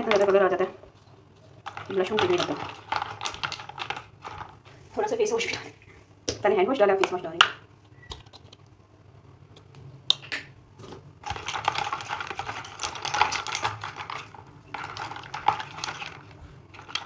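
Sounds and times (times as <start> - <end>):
brushes clattering in soapy water: 1.6 - 4.6, 11.2 - 17.0.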